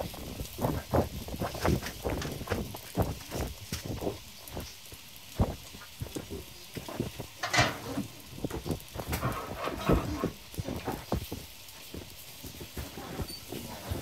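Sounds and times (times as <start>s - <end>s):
wooden picks scraping a cast-iron pan: 6.3s - 14.0s.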